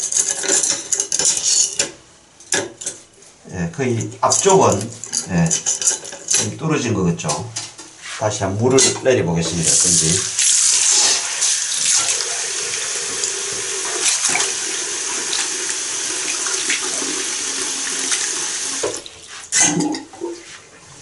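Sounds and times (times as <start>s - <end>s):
tap water running into drain: 9.5s - 20.4s
last water draining away: 9.6s - 20.4s.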